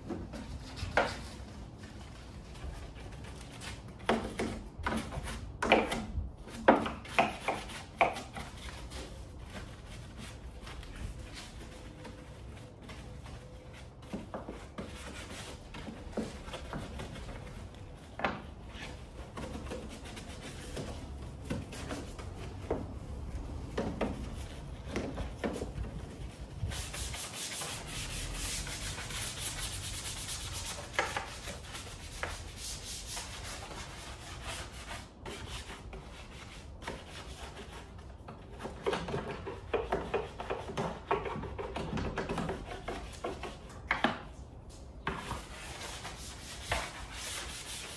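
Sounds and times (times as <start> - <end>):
brush scrubbing: 26.3 - 37.9.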